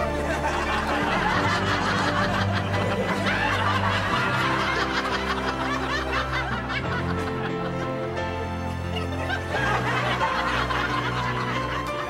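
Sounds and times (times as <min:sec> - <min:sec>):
canned audience laughter: 0:00.0 - 0:12.0
light background music: 0:00.0 - 0:12.0.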